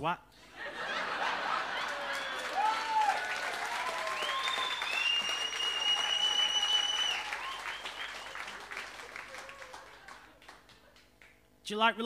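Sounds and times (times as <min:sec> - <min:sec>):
audience applauding and cheering: 0:01.0 - 0:11.3
long high whistle: 0:03.8 - 0:08.6.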